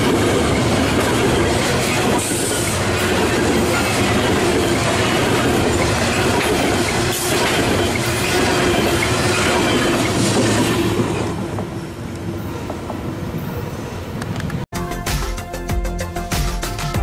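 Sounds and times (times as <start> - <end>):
freight train wheels clattering: 0.0 - 11.7.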